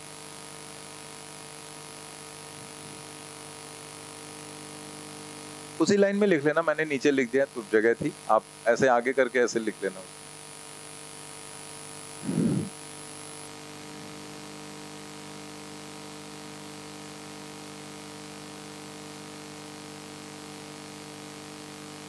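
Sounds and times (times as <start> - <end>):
mains hum: 0.0 - 22.0
short low sound: 12.2 - 12.7
recording hiss: 12.2 - 12.8.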